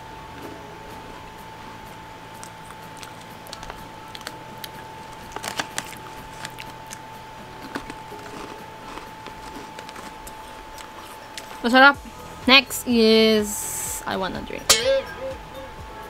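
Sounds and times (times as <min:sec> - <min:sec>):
steady hum: 0:00.0 - 0:16.0
chips crunching: 0:02.4 - 0:11.7.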